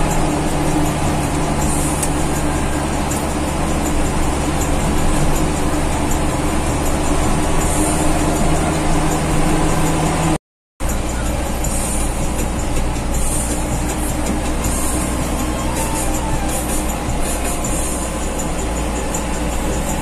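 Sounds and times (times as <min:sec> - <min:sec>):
bus engine drone: 0:00.0 - 0:20.0
road noise: 0:00.0 - 0:20.0.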